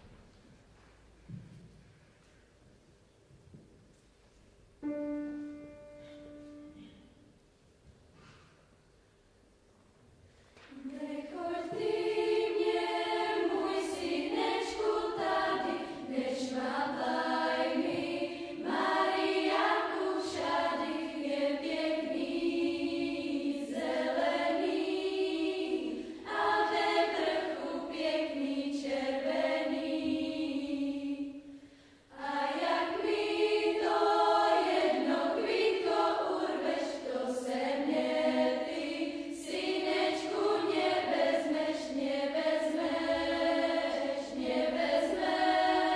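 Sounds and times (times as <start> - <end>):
youth choir singing: 10.8 - 45.9.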